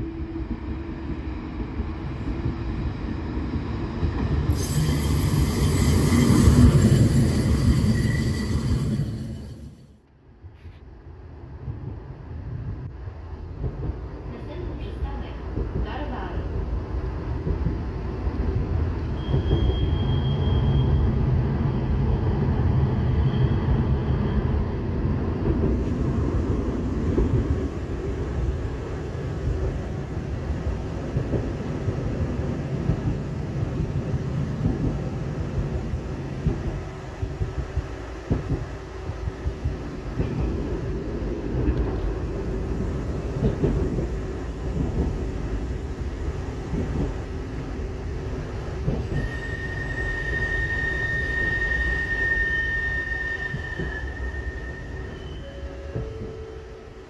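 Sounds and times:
tram wheels rumbling on rails: 0:00.0 - 0:57.0
thin high whine: 0:04.5 - 0:10.0.

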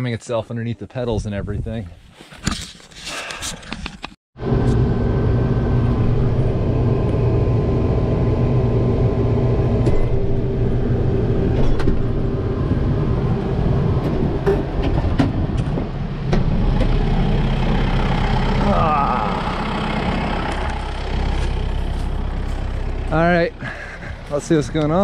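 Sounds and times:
tractor engine running: 0:04.4 - 0:25.0.

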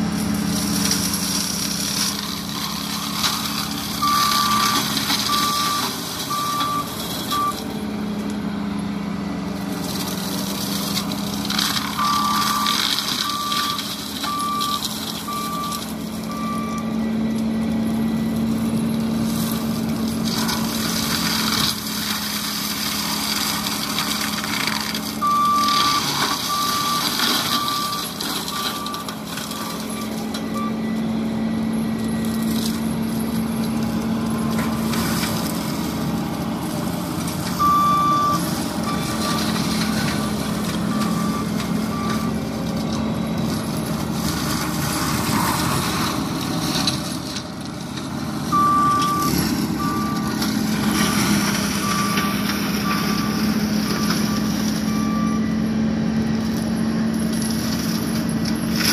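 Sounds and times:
track loader engine droning: 0:00.0 - 0:58.9
back-up alarm beeping: 0:04.0 - 0:07.6, 0:12.0 - 0:18.4, 0:37.6 - 0:39.6, 0:48.5 - 0:50.3.

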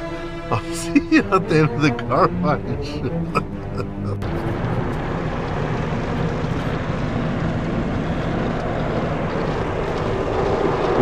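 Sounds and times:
car wash brushes and water spray: 0:04.3 - 0:11.0.

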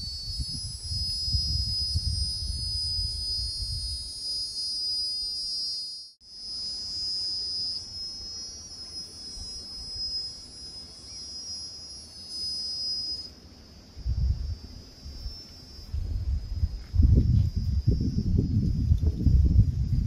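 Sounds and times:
wind rumbling on microphone: 0:00.0 - 0:04.5, 0:14.0 - 0:20.0
high-pitched insect drone: 0:00.0 - 0:20.0.

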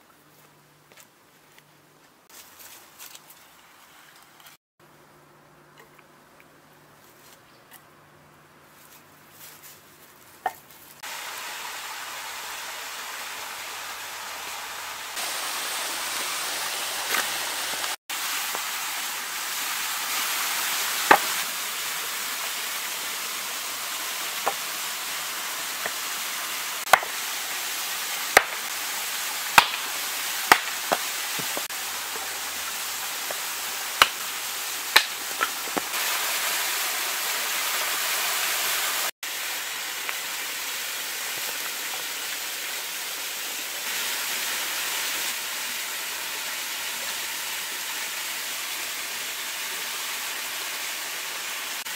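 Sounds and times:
small waterfall rushing: 0:11.0 - 0:51.9
axe splitting wood: 0:21.1 - 0:21.4, 0:26.9 - 0:27.2, 0:28.3 - 0:28.6, 0:29.6 - 0:29.9, 0:30.5 - 0:31.5, 0:34.0 - 0:34.2, 0:34.9 - 0:35.9.

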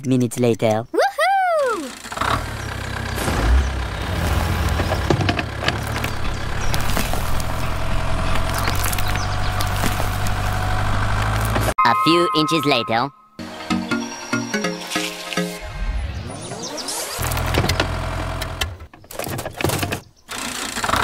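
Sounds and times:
tractor engine running: 0:01.8 - 0:11.8, 0:17.2 - 0:21.0.

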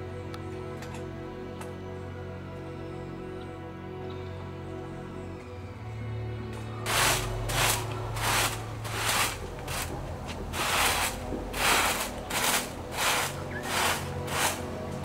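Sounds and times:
rhythmic rasping strokes: 0:06.8 - 0:15.0.

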